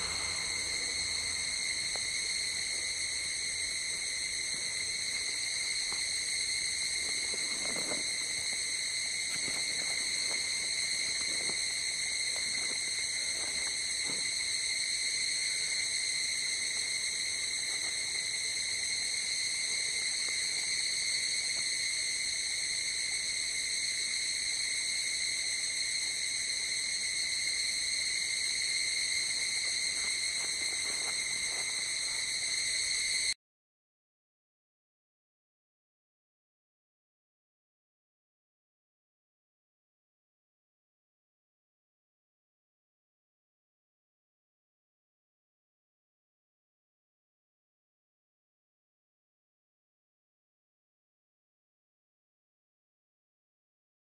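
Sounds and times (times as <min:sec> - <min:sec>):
night insects trilling: 0:00.0 - 0:33.4.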